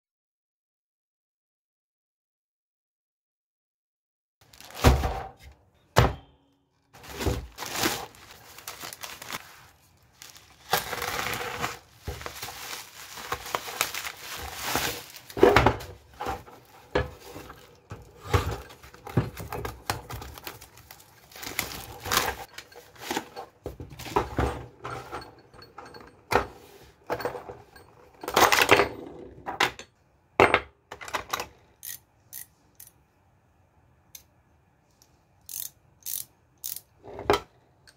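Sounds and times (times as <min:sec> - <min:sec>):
plastic wrapping tearing: 0:04.4 - 0:04.8, 0:07.0 - 0:15.4, 0:20.1 - 0:22.4
socket ratchet clicking: 0:31.8 - 0:33.0, 0:35.4 - 0:36.9.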